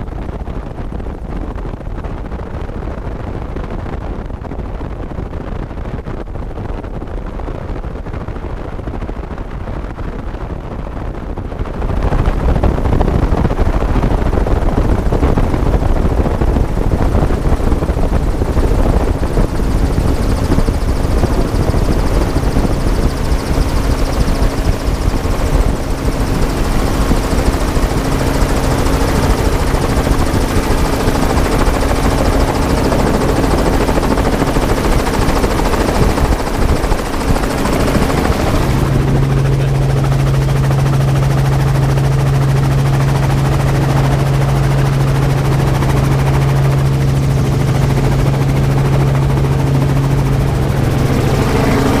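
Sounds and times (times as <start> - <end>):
helicopter rotor and engine: 0.0 - 52.0
strong steady low hum: 11.2 - 52.0.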